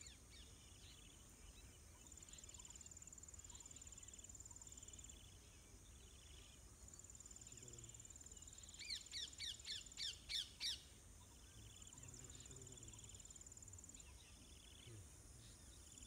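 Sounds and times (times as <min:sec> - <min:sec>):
insect chirping: 0:00.0 - 0:16.0
insects trilling: 0:00.0 - 0:16.0
bird calling: 0:08.6 - 0:15.9.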